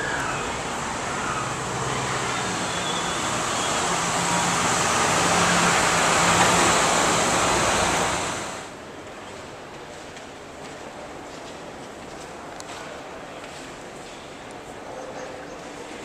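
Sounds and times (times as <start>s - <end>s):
vehicle engine running: 0.0s - 8.7s
road noise: 0.0s - 9.9s.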